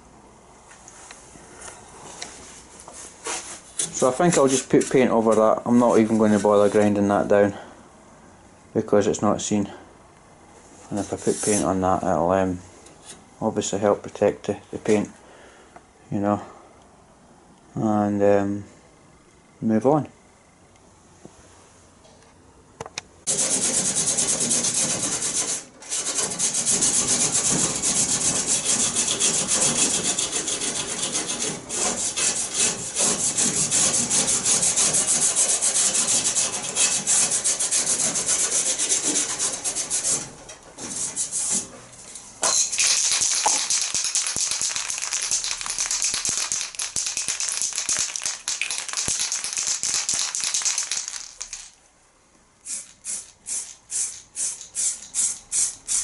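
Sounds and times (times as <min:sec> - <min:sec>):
aerosol spray can hissing: 0:42.8 - 0:51.7, 0:52.6 - 0:56.0.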